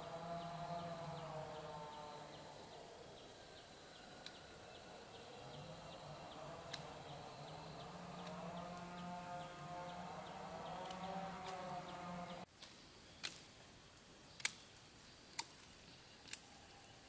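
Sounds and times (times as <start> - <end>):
faint motor hum: 0.0 - 12.5
sharp clicks: 6.7 - 6.9, 14.4 - 14.6.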